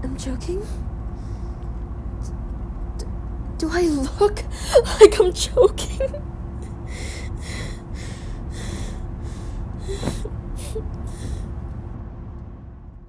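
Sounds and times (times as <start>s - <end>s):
low steady rumble: 0.0s - 13.0s
person breathing heavily: 4.5s - 5.0s, 6.6s - 11.7s.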